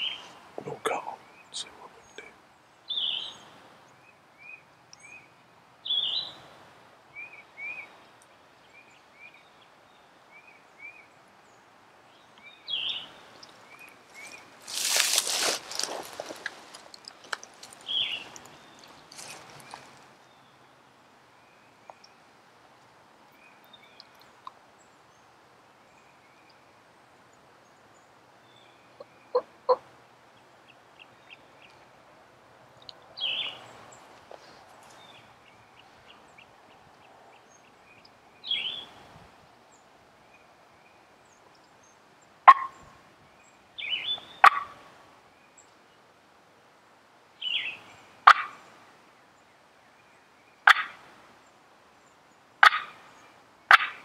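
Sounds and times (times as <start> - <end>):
turkey gobbling: 29.3 - 29.8, 42.5 - 42.8, 44.4 - 44.8, 48.2 - 48.6, 50.7 - 51.0, 52.6 - 53.0, 53.7 - 54.0.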